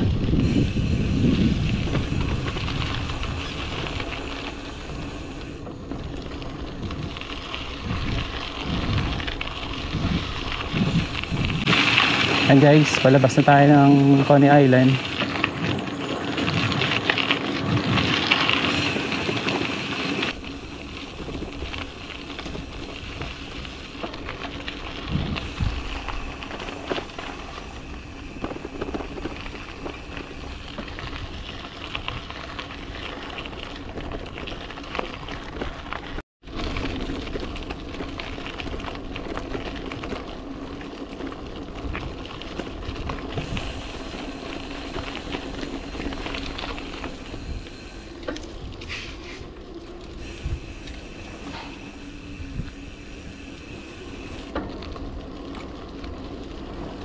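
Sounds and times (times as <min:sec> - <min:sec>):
wind rushing over microphone: 0:00.0 - 0:05.6, 0:06.6 - 0:15.2, 0:24.9 - 0:32.4, 0:50.2 - 0:54.5
tyre and road noise: 0:00.0 - 0:57.0.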